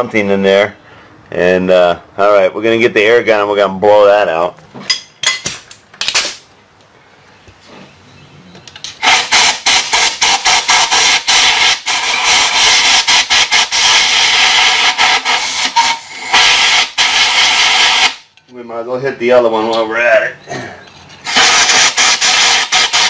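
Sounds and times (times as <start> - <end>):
compressed air blow gun hissing: 9.0 - 18.2, 21.2 - 23.0.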